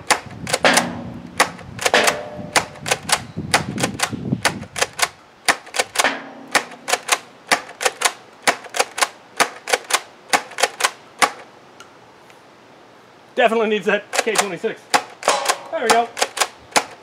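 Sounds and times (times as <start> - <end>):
toy blaster firing and pumping: 2.6 - 6.0, 6.6 - 11.4, 15.9 - 17.0.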